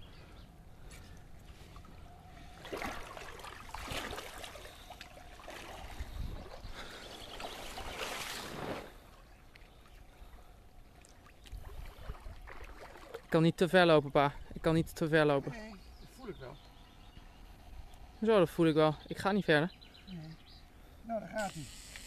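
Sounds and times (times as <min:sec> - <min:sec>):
water lapping: 0:00.0 - 0:18.7
water sloshing and splashing: 0:00.8 - 0:13.7.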